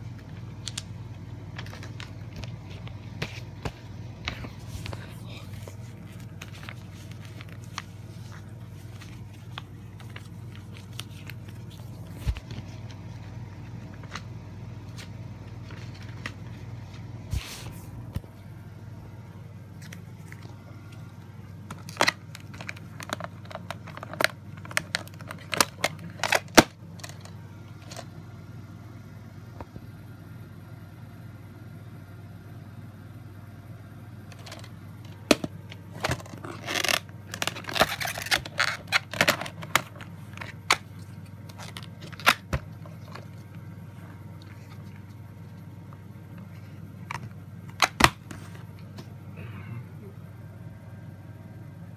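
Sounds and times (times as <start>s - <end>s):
steady low hum: 0.0s - 51.9s
plastic case clicks and rustles: 21.7s - 28.1s, 34.3s - 40.9s.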